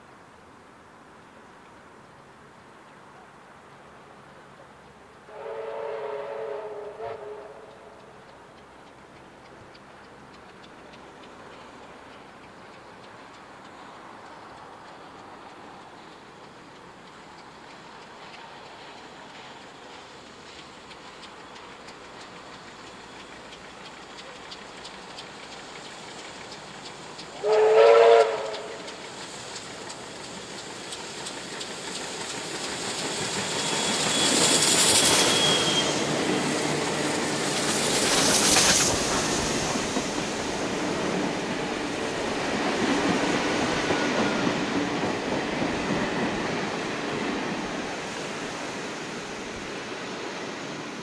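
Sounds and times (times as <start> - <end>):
steam locomotives passing: 0.0 - 51.0
steam whistle blast: 5.3 - 7.8, 27.4 - 28.9, 33.5 - 36.2.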